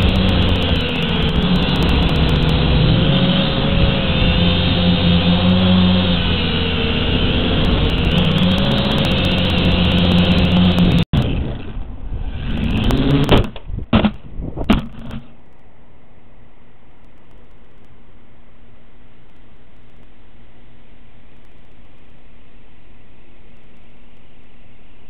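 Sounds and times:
static hiss: 0.0s - 11.1s
drone propellers buzzing: 0.0s - 13.7s.

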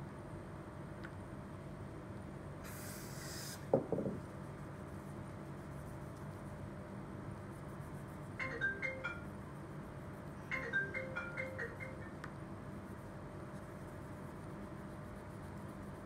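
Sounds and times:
brief hiss: 2.6s - 3.7s.

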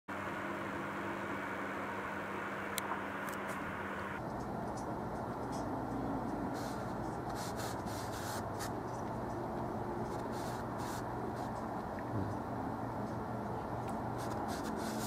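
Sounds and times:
steady low hum: 0.1s - 15.0s
paintbrush strokes on canvas: 6.5s - 8.8s, 10.1s - 11.6s, 14.2s - 15.0s.

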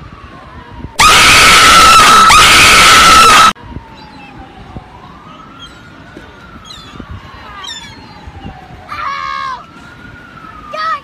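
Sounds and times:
high-pitched scream: 1.0s - 3.6s.

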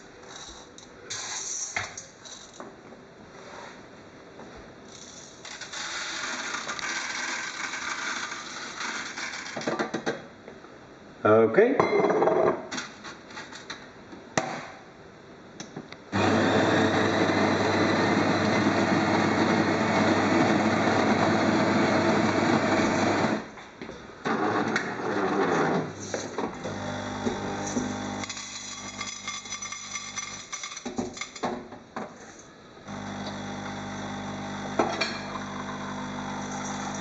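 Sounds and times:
coffee grinder running: 5.7s - 9.4s, 16.2s - 23.5s, 26.6s - 30.6s, 32.9s - 37.0s
coffee machine pump humming: 16.2s - 23.4s, 26.6s - 30.4s, 32.9s - 37.0s.

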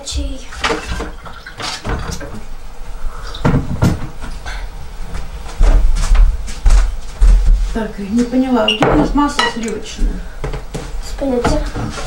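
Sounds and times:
kitchen items knocking and rattling: 0.6s - 2.4s.

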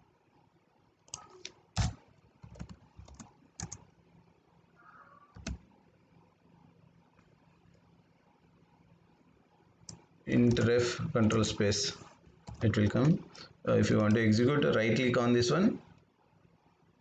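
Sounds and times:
keyboard typing: 1.1s - 3.9s, 5.3s - 5.7s, 9.8s - 14.7s.

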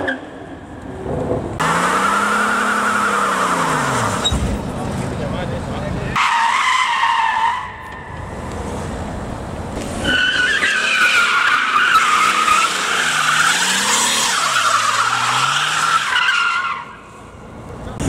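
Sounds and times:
engine revving: 1.1s - 4.4s.

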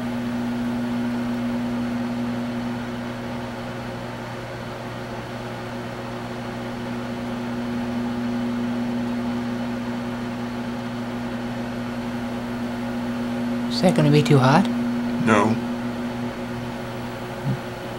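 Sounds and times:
microwave oven humming: 0.0s - 17.9s.

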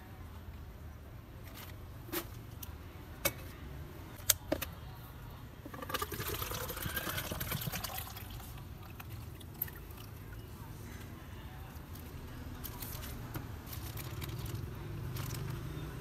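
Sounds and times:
liquid pouring into plastic cup: 5.7s - 10.2s
plastic cups clicking: 5.7s - 10.2s.

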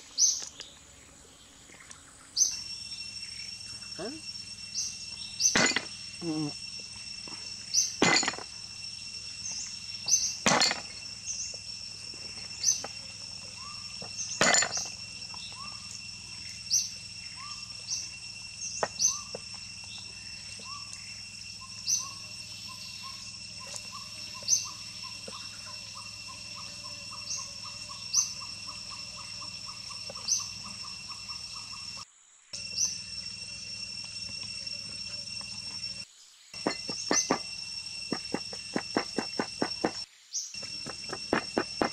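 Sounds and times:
high insect drone: 0.0s - 41.9s
cleaver chopping on wooden board: 36.6s - 37.5s.

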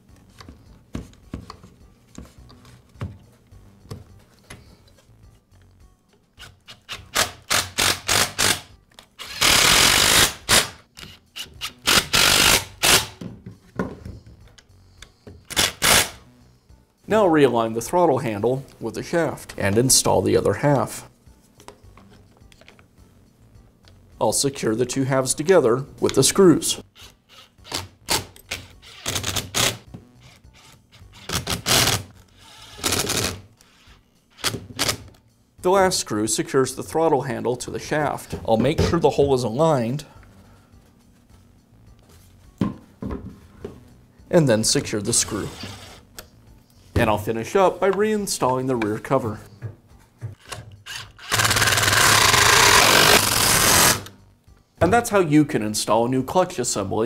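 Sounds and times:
cordless driver driving screws: 6.4s - 13.2s, 27.0s - 35.0s, 50.4s - 54.1s.

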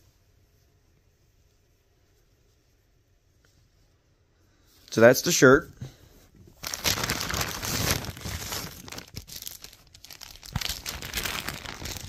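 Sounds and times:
plastic bags crinkling: 6.5s - 12.0s.

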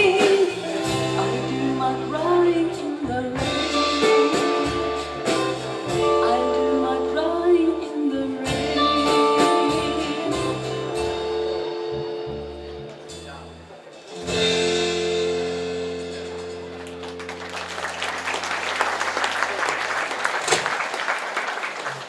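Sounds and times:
woman singing: 0.0s - 11.3s
electric guitar: 0.0s - 13.2s, 14.1s - 18.9s
drums: 0.0s - 22.0s.

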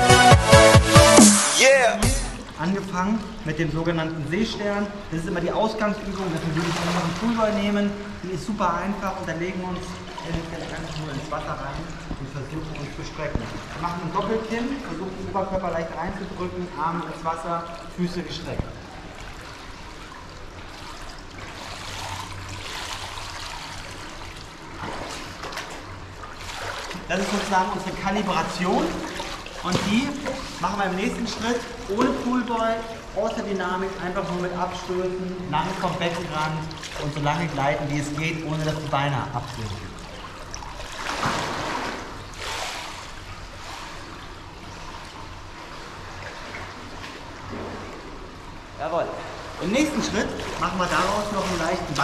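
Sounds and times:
steady low hum: 1.7s - 52.0s
water trickling and lapping: 2.3s - 52.0s.

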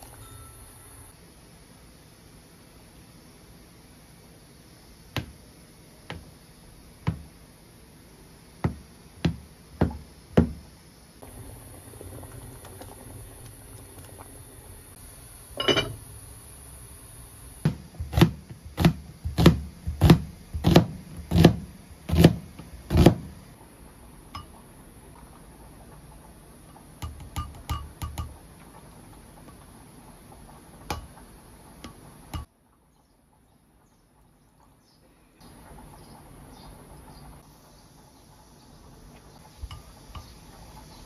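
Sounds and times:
water boiling in pot: 0.0s - 34.8s, 35.4s - 41.0s
wooden spoon knocking: 27.0s - 28.4s.

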